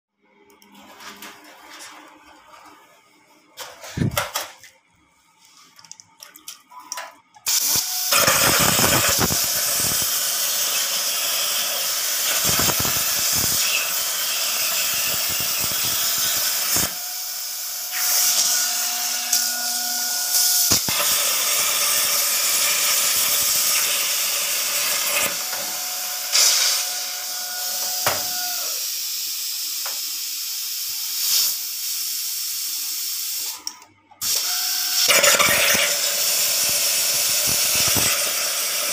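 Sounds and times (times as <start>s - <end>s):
plasma arc hissing: 7.4s - 18.6s, 19.2s - 33.6s, 34.2s - 38.9s.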